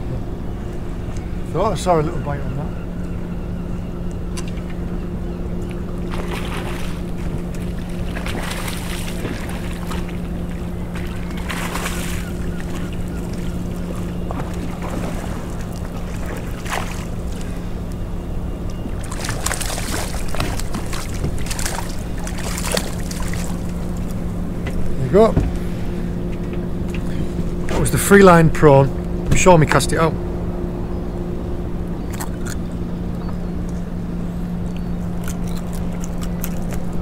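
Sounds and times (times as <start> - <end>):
low engine hum: 0.0 - 37.0
fish splashing: 6.0 - 17.7, 18.9 - 24.2.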